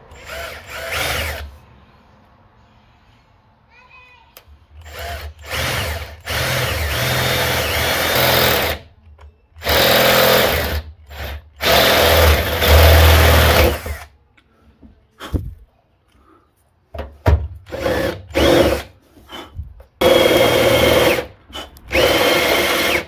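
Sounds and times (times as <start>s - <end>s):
power drill boring through metal: 0.1s - 1.5s, 4.8s - 8.8s, 9.6s - 14.1s, 17.7s - 19.4s, 20.0s - 23.0s.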